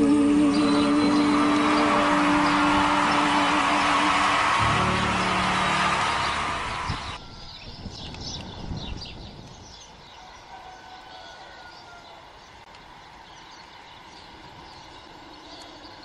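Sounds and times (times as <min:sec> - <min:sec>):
small birds chirping: 0:05.6 - 0:10.5, 0:11.7 - 0:16.0.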